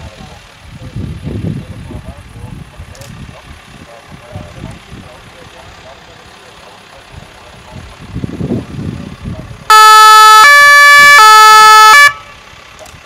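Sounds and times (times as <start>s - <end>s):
two-tone police siren: 9.7s - 12.3s.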